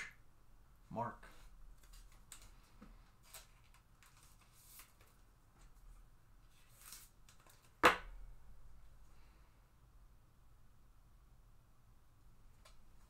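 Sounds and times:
card and plastic rustling: 1.7 - 5.8, 6.5 - 7.8.

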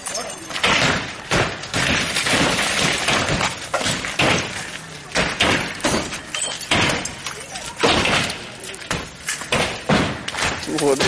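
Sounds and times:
heavy thuds and bangs on bus: 8.9 - 10.6.

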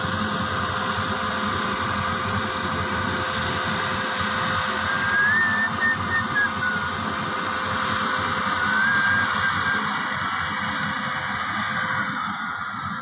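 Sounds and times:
combine harvester running: 0.0 - 13.0
thin wavering high tone: 4.6 - 10.4.

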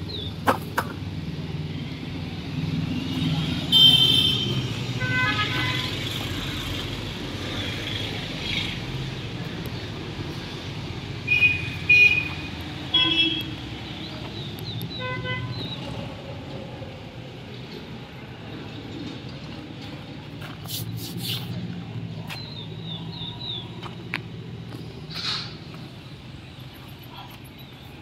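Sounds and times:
road traffic: 0.0 - 28.0
vehicle horn toots: 3.7 - 5.9, 11.3 - 13.6, 15.0 - 15.5.

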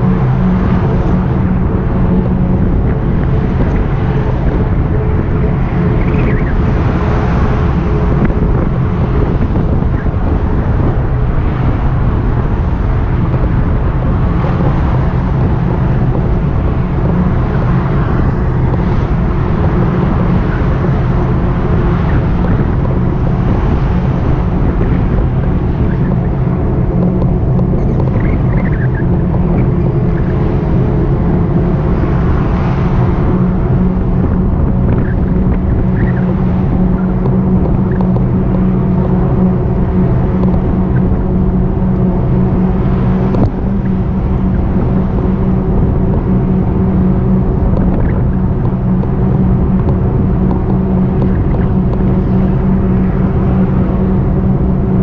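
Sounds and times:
road rumble: 0.0 - 55.0
steady low hum: 0.0 - 55.0
wind on microphone: 0.0 - 55.0
faint ticks: 37.0 - 38.7, 47.8 - 52.1.

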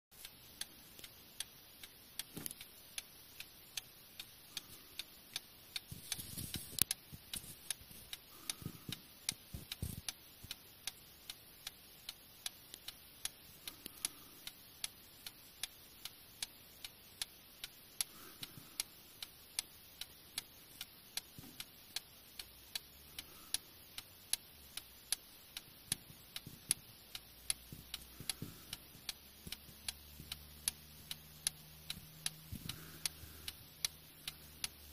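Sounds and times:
clock ticking: 0.1 - 34.9
soft low thumps: 25.9 - 32.8.

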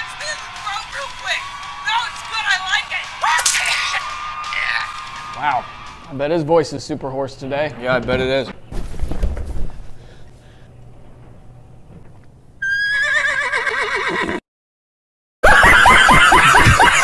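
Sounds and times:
loud rapid laughter: 15.4 - 17.0.

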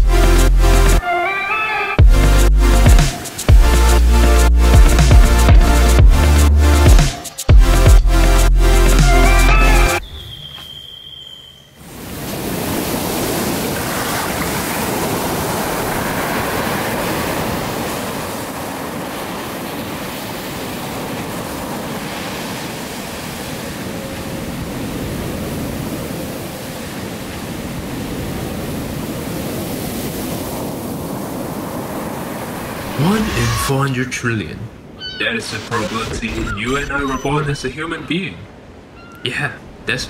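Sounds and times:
ocean waves breaking on beach: 3.0 - 4.4, 11.8 - 40.0.

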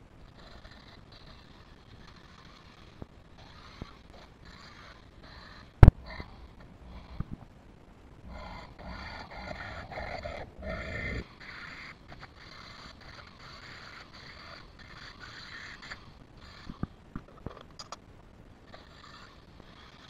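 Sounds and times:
bit grinding on metal: 18.7 - 20.0.

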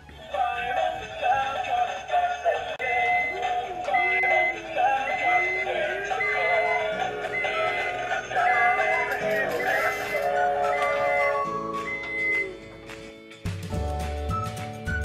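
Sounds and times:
upbeat synth music: 3.1 - 14.6.

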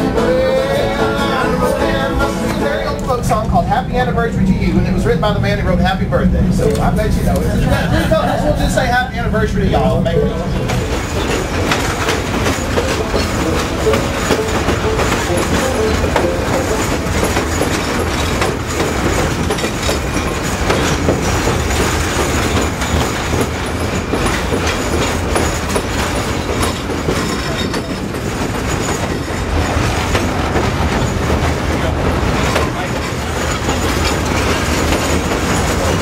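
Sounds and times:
train wheels on rails: 0.0 - 36.0
rail joint clicks: 6.6 - 7.6, 9.7 - 36.0.

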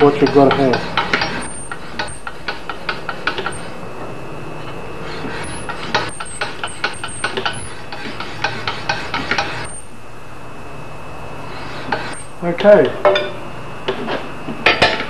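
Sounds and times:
file scraping metal: 0.0 - 3.8, 4.6 - 9.8, 11.4 - 12.3.

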